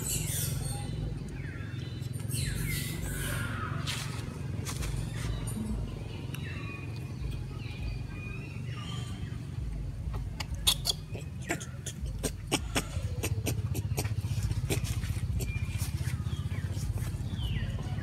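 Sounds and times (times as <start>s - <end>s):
baby monkey squeaking: 0.0s - 1.0s, 10.1s - 16.1s
steady low hum: 0.0s - 18.0s.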